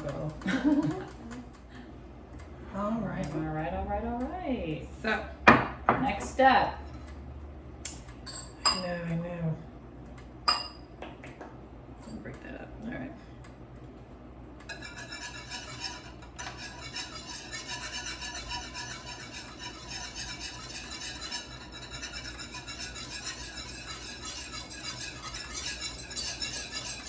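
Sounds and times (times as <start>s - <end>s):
whisk clattering in saucepan: 14.7s - 27.0s.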